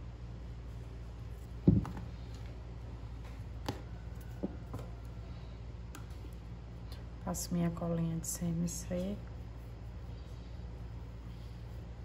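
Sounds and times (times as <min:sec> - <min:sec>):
steady low hum: 0:00.0 - 0:12.0
soft thump: 0:01.6 - 0:02.0.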